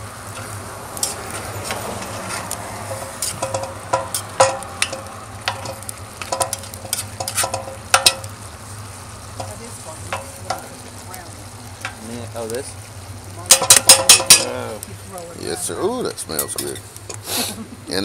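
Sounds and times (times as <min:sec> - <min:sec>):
food sizzling: 0:00.0 - 0:18.0
spoon scraping metal pot: 0:00.4 - 0:05.7, 0:06.3 - 0:08.2.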